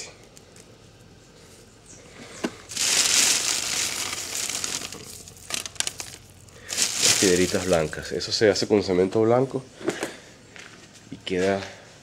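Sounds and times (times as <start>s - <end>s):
plastic bag crinkling: 2.6s - 8.4s.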